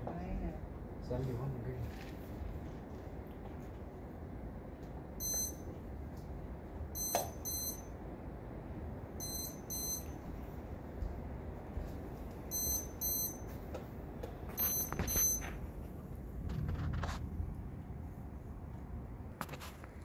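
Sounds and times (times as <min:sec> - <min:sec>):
lightning detector double beeps: 0:05.2 - 0:05.7, 0:07.0 - 0:07.9, 0:09.2 - 0:10.2, 0:12.5 - 0:13.5, 0:14.6 - 0:15.5.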